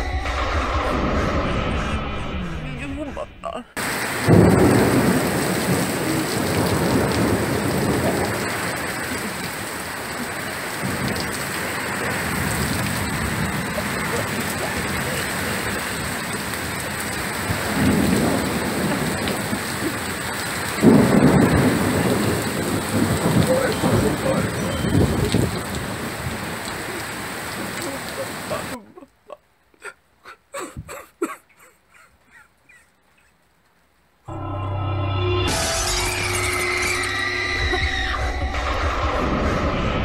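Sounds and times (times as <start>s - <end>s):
thunder clap: 0.0s - 3.0s, 3.8s - 28.8s, 37.6s - 40.0s
thunder rumbling: 0.0s - 28.8s, 37.5s - 40.0s
steady rain: 3.8s - 34.3s.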